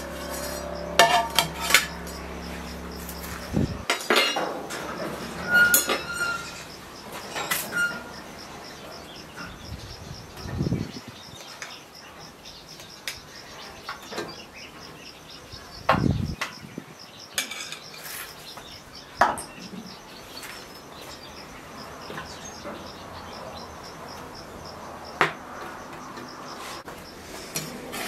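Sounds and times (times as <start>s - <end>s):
faint pulsing high chirp: 0.0s - 3.9s.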